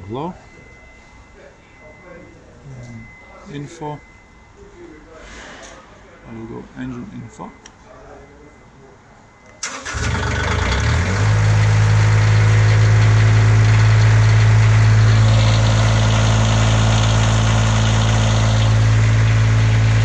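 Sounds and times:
engine running steady: 9.6 - 20.0.

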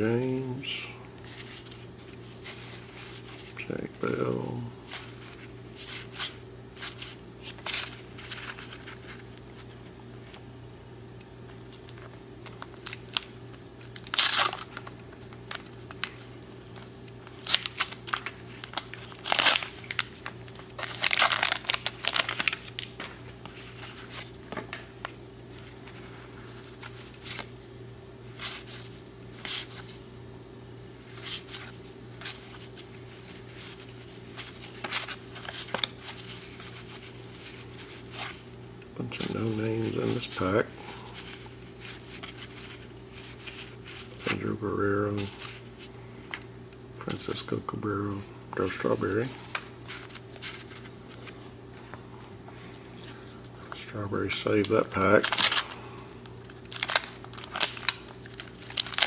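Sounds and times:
cardboard cards being handled: 1.2 - 10.4, 11.4 - 27.5, 31.0 - 38.4, 39.1 - 47.3, 48.6 - 59.0
wax paper wrapper tearing: 11.5 - 24.4, 31.0 - 38.4, 54.2 - 59.0.

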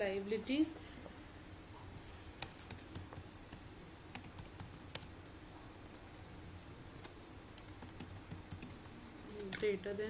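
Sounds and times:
faint keyboard typing: 2.4 - 9.9.

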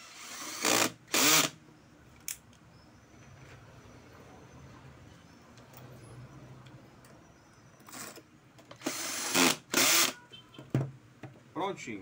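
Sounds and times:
cordless drill driving screws: 0.0 - 1.6, 8.8 - 10.2.

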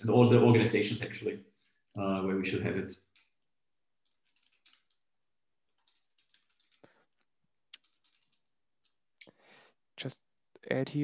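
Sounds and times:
keyboard typing: 3.0 - 9.0.

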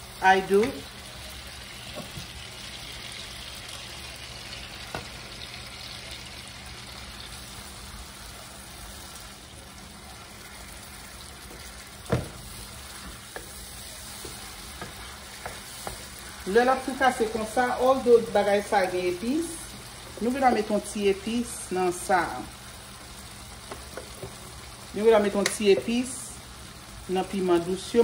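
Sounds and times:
fish sizzling in a skillet: 0.0 - 28.0
wooden spatula knocking on pan: 11.5 - 13.6, 14.2 - 16.1.

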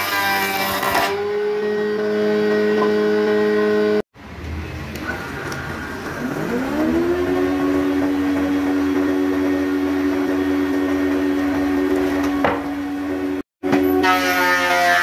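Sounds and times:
thickness planer running: 6.0 - 15.0.

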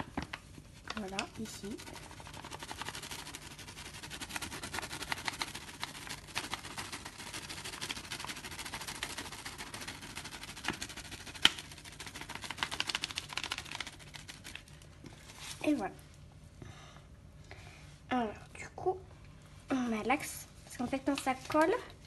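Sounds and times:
dough kneading crackling clicks: 4.7 - 9.6.

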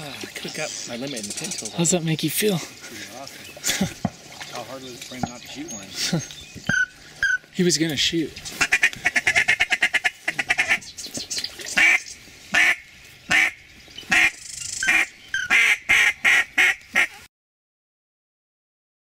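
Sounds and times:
duck quacking: 8.6 - 10.8, 11.8 - 17.3.

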